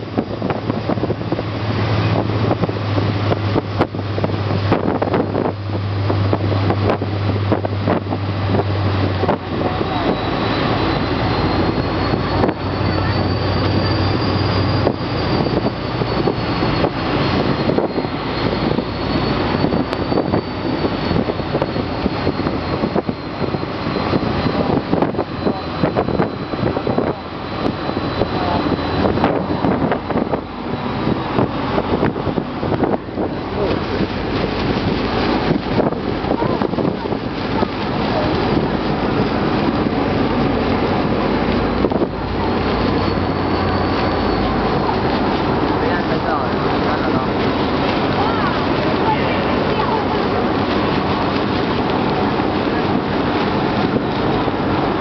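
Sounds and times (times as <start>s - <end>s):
ferry engines roaring: 0.0s - 55.0s
low hum: 0.0s - 55.0s
wind buffeting microphone: 0.0s - 55.0s
thin high whine: 6.8s - 36.7s, 37.5s - 47.4s.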